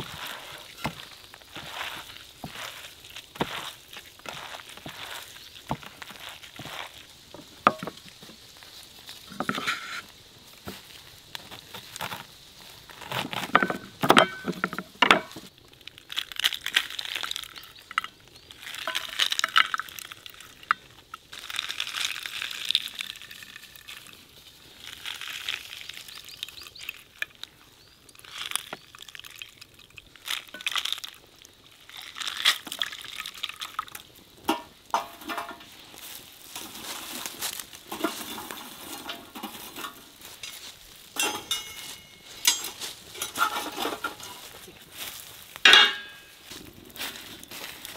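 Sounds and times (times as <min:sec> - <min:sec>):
juice splashing into metal pan: 0:28.1 - 0:35.6.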